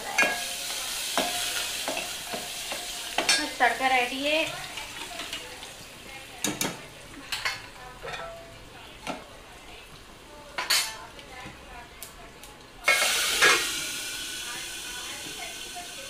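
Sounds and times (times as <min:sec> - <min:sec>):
metal utensils clinking on pots: 0:00.0 - 0:05.8, 0:06.4 - 0:09.3, 0:10.6 - 0:11.0, 0:12.8 - 0:13.8
hot oil sizzling: 0:00.0 - 0:16.0.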